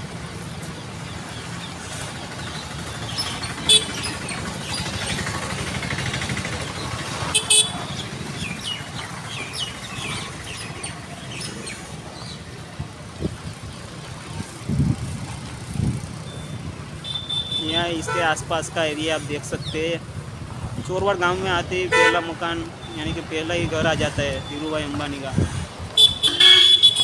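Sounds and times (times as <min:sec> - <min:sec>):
motor vehicle passing: 0:00.0 - 0:17.6
street ambience: 0:00.0 - 0:27.0.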